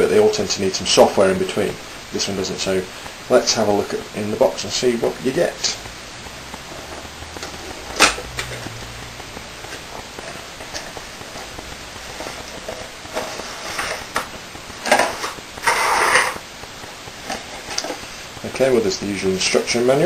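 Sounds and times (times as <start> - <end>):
cardboard and paper rustling: 6.7 - 18.3.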